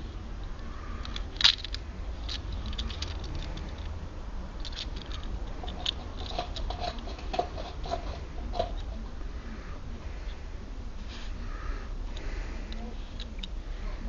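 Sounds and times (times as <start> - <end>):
lock picks clicking in a padlock: 1.0 - 4.0, 4.6 - 6.3.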